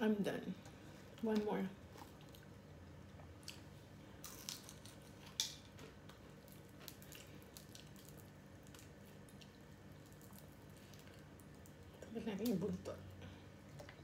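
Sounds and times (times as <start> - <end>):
fried shrimp crunching: 1.9 - 12.7.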